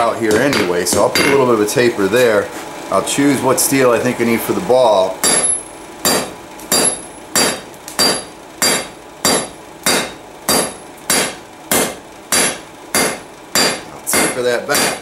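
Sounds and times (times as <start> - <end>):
hammer striking metal on anvil: 0.3 - 1.4, 5.2 - 15.0.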